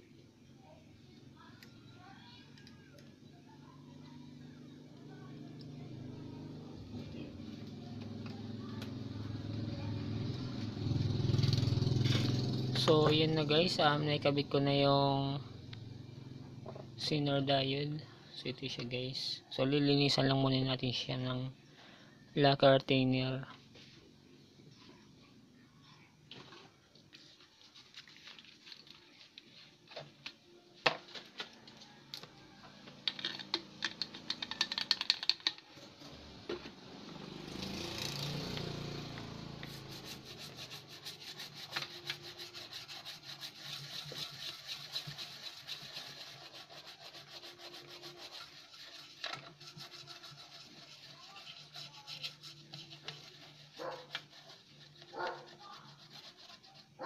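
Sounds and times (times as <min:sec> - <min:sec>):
toothbrush scrubbing circuit board: 0:39.6 - 0:57.0.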